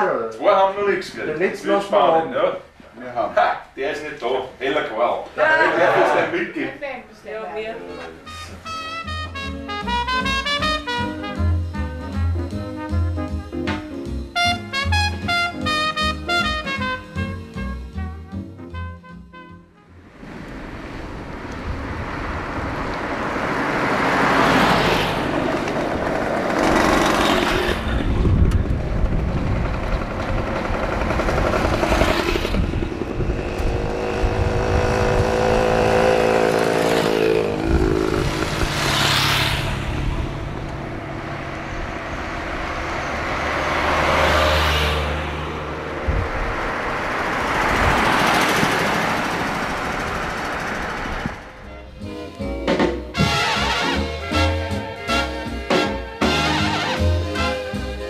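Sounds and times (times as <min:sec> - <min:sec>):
vintage cars and motorcycles passing: 0:20.0 - 0:58.0.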